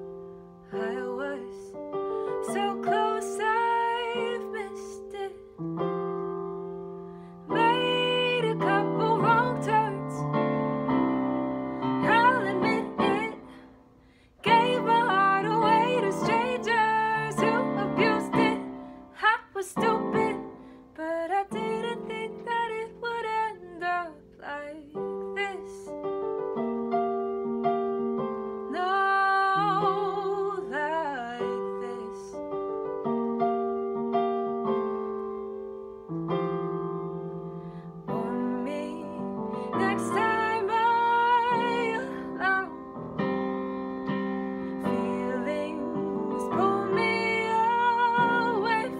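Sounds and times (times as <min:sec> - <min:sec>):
piano accompaniment: 0:00.0 - 0:48.9
woman singing a slow ballad: 0:00.6 - 0:06.1, 0:07.4 - 0:10.6, 0:11.8 - 0:13.8, 0:14.4 - 0:26.1, 0:28.6 - 0:33.0, 0:37.9 - 0:43.2, 0:44.6 - 0:48.9.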